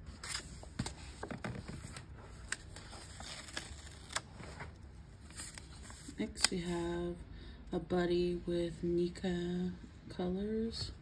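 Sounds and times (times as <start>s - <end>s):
hand handling paper pages: 0.0s - 6.6s.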